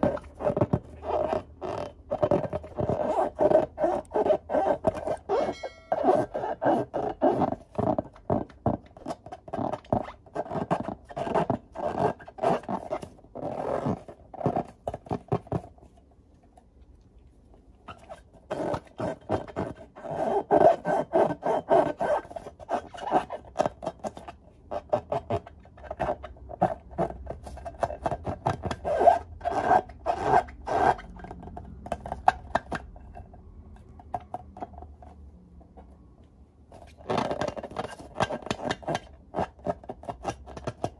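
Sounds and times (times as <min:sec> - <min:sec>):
rubber balloons squeaking: 0:00.0 - 0:15.3, 0:17.9 - 0:31.4.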